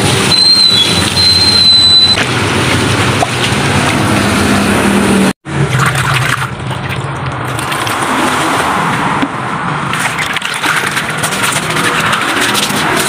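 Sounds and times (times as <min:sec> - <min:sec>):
water stream splashing: 0:09.8 - 0:13.0
hand swishing water: 0:09.9 - 0:13.0.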